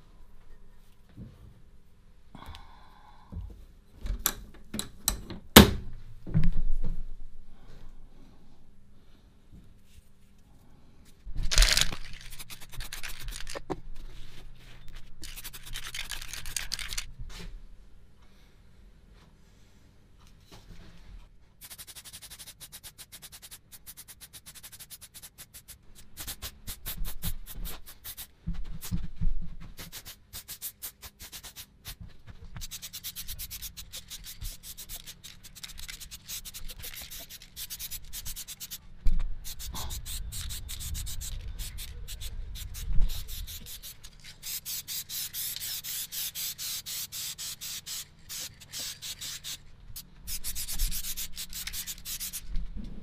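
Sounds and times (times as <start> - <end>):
aerosol spray can hissing: 11.6 - 13.6, 15.2 - 17.1, 21.6 - 28.3, 29.8 - 32.0, 32.6 - 38.8, 39.4 - 52.4.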